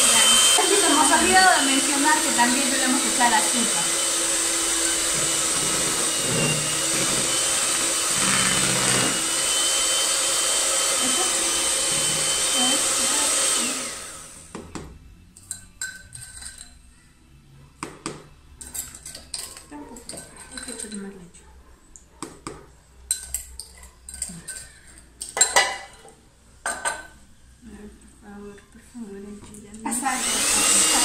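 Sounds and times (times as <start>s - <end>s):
electric hand mixer whirring: 0.0s - 14.6s, 29.9s - 31.0s.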